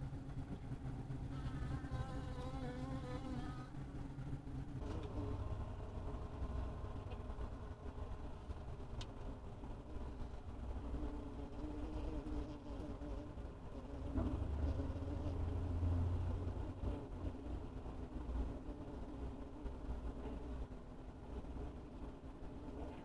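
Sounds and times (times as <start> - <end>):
steady low hum: 0.0 - 23.0
bees buzzing in hive: 0.3 - 8.9, 9.7 - 20.5
close bee wavering buzz: 1.2 - 8.9, 9.8 - 20.1.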